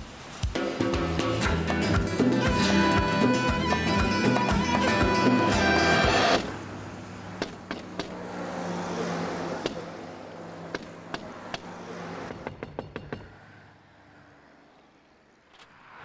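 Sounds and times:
sharp taps and knocks: 7.4 - 8.2, 9.6 - 9.9, 10.7 - 13.4.

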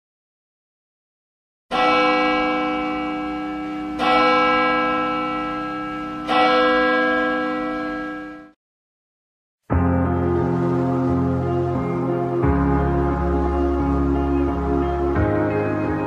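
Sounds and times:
large bell ringing: 1.7 - 8.6.

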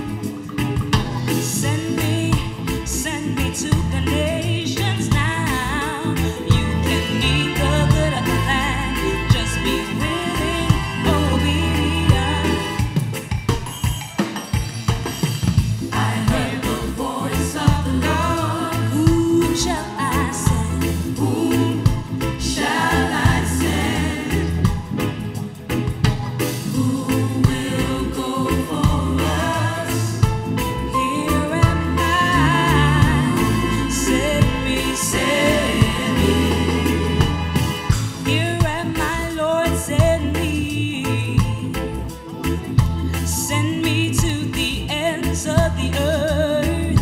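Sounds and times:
live band playing: 0.0 - 47.0
woman singing into microphone: 1.4 - 13.1, 16.0 - 24.5, 26.7 - 37.3, 38.2 - 42.0, 43.3 - 47.0
choir singing: 6.6 - 13.0, 15.9 - 25.2, 26.6 - 38.3.

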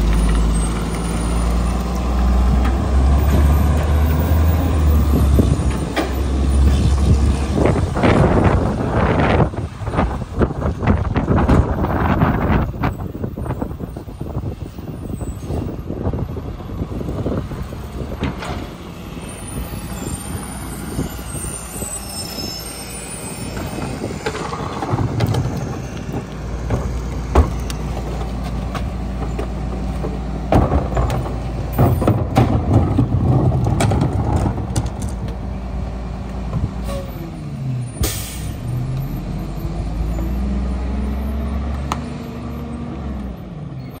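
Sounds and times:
garbage truck diesel engine: 0.0 - 44.0
trash cart clanking on hopper: 23.6 - 35.4
air brake hiss: 38.0 - 38.6.

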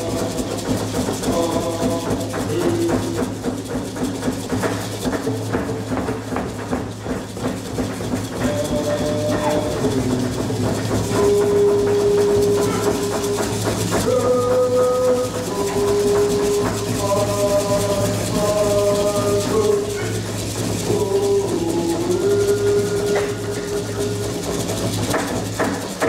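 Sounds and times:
hand rattles shaking: 0.0 - 26.0
wooden whistles blown: 7.0 - 26.0.

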